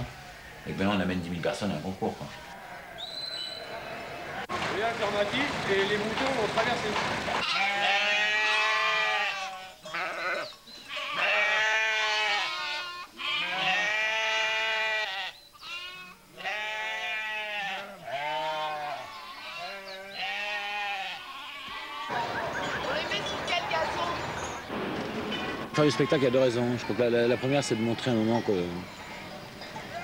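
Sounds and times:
sheep bleating: 0.0s - 1.1s, 2.4s - 3.2s, 7.4s - 24.2s, 25.4s - 28.7s.

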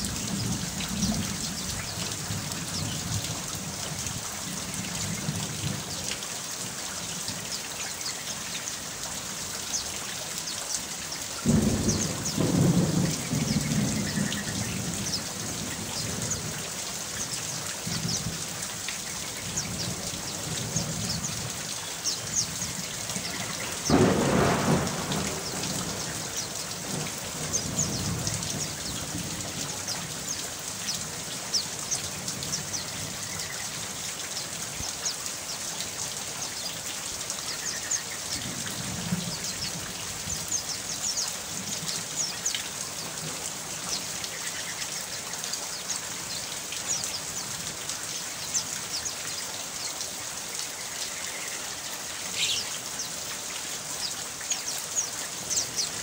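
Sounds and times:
steady rain: 0.0s - 56.0s
thunder rolling: 23.8s - 28.7s.

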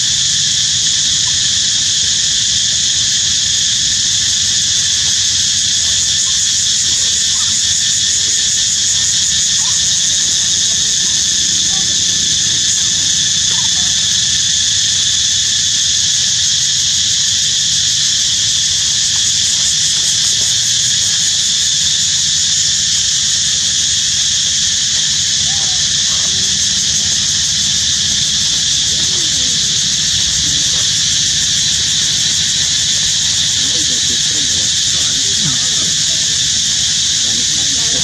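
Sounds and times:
high-pitched insect chorus: 0.0s - 38.0s.

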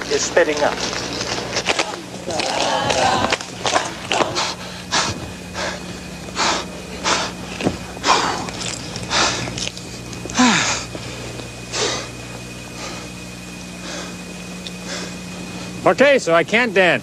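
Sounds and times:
man breathing hard: 4.1s - 15.8s.

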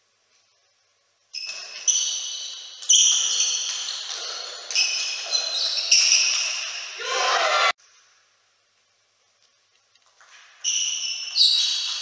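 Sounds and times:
table tennis ball hits: 1.4s - 7.0s.

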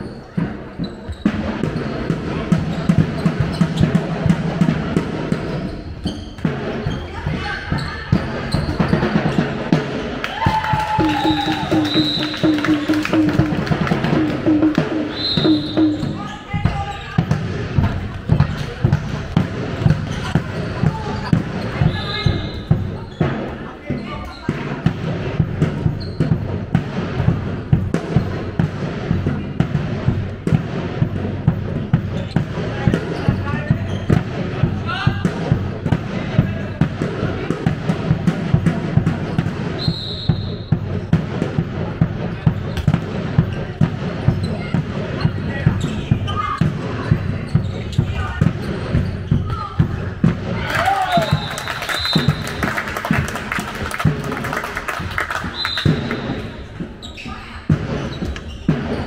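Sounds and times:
ball bouncing on a hall floor: 10.4s - 52.6s.

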